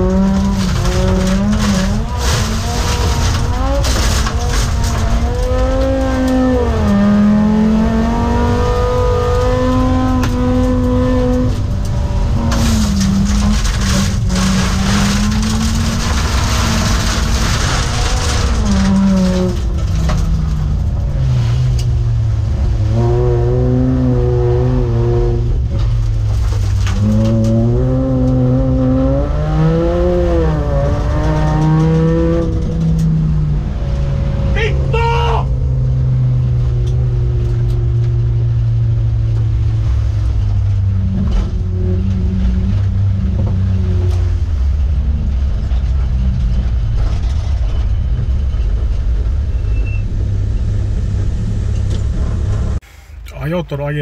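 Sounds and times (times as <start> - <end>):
car engine revving hard: 0.0 - 19.6, 22.5 - 25.6, 26.9 - 34.9.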